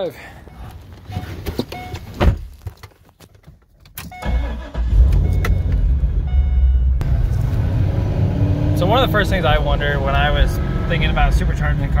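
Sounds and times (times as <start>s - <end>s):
car engine cranking and idling: 3.5s - 12.0s.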